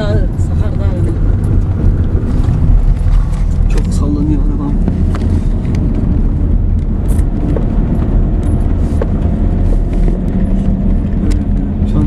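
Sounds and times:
van engine and tyres rumbling: 0.0 - 12.0
knocks and rattles over bumps: 4.8 - 12.0.

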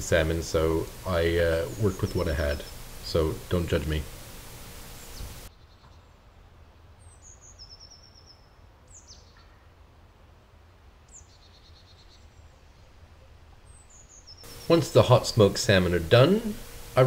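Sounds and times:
faint birdsong: 0.0 - 9.9, 10.8 - 17.0
low steady rumble: 14.5 - 17.0.

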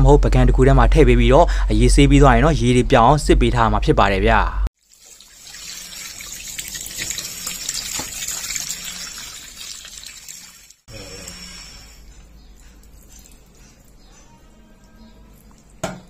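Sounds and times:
tap water splashing in a sink: 4.8 - 10.8.

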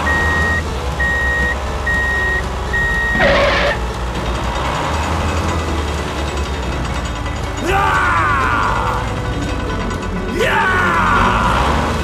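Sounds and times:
truck reversing alarm beeps: 0.0 - 3.8
low engine rumble: 0.0 - 12.0.

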